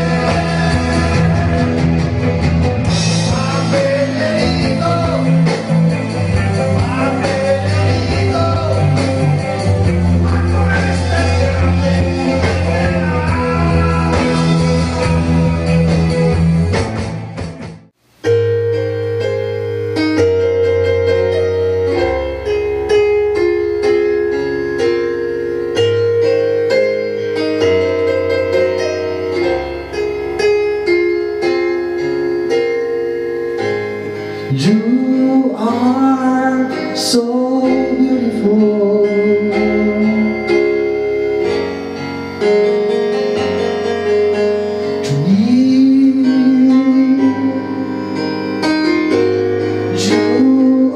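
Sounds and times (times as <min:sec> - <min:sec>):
person singing: 0:00.0 - 0:16.4, 0:34.0 - 0:41.6, 0:44.9 - 0:50.9
keyboard sustained chords: 0:00.0 - 0:17.4, 0:18.2 - 0:50.9.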